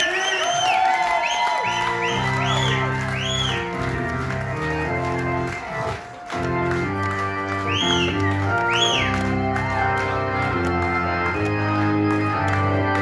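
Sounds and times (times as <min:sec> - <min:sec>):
organ-sounding keyboard chords: 0:01.5 - 0:13.0.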